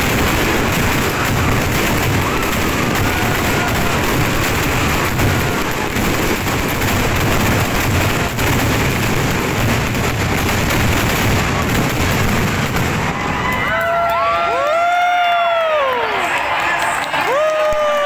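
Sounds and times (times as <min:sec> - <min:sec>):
fireworks booming rumble: 0:00.0 - 0:14.0
fireworks crackling: 0:00.0 - 0:18.0.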